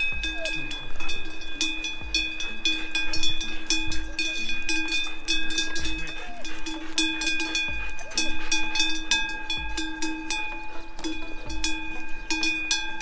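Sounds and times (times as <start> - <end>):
background music with steady beat: 0.0 - 13.0.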